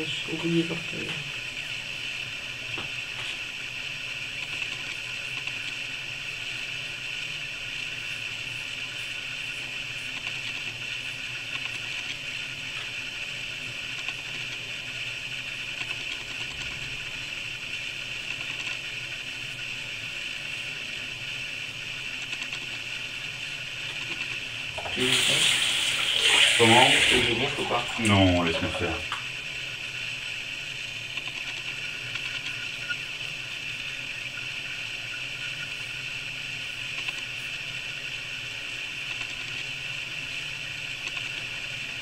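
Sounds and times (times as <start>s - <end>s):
steady hiss: 16.9s - 42.0s.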